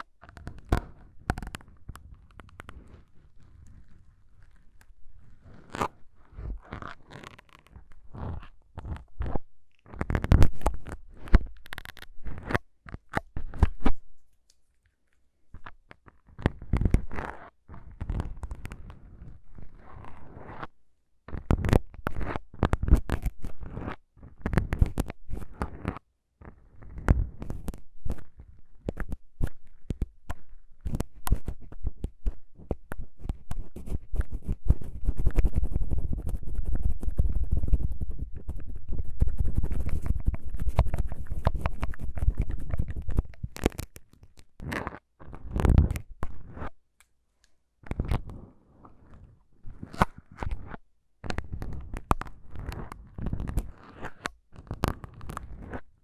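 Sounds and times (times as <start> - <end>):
plastic syringe clicks and scratches: 0.0 - 20.7, 21.3 - 55.9
syringe tip scraping foam: 33.3 - 44.0.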